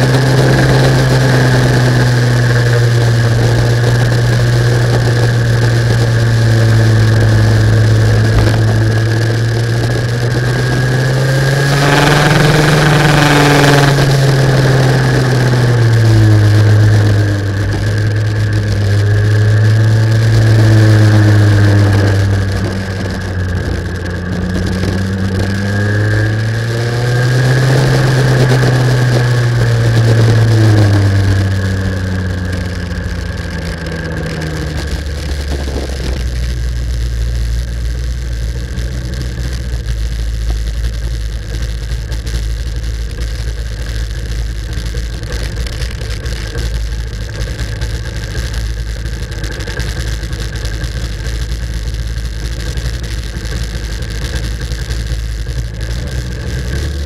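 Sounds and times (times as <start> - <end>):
racing kart engine accelerating: 0.0 - 36.3.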